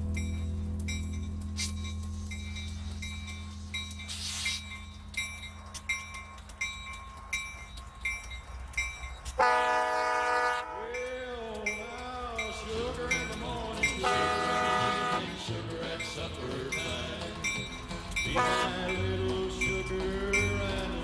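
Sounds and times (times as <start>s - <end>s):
diesel locomotive rumbling: 0.0s - 21.0s
locomotive bell ringing: 0.0s - 21.0s
train air horn: 9.4s - 10.8s, 14.0s - 15.5s, 18.4s - 19.0s.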